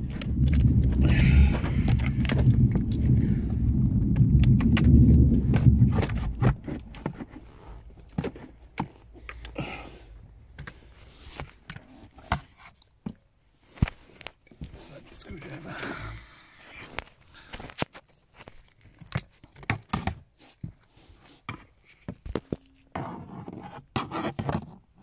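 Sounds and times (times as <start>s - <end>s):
microphone handling noise: 0.0s - 8.2s.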